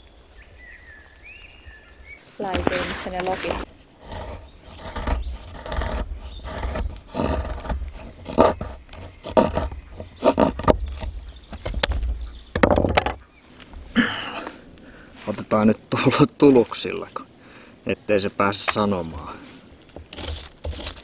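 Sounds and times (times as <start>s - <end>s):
dry wood scraping and cracking: 2.4s - 13.9s, 15.2s - 17.2s, 18.2s - 21.0s
wood snapping: 2.5s - 13.2s, 19.8s - 21.0s.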